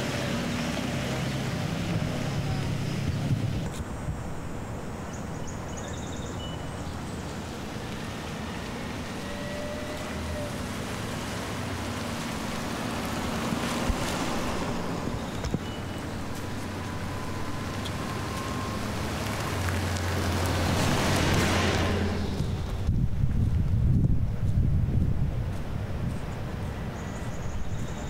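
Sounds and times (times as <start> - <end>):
wind on microphone: 1.6 - 4.8, 20.2 - 28.0.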